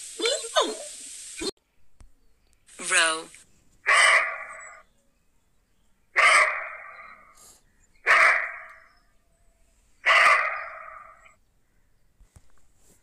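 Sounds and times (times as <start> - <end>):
deer barking: 3.8 - 4.8, 6.1 - 7.4, 8.0 - 9.0, 10.0 - 11.4.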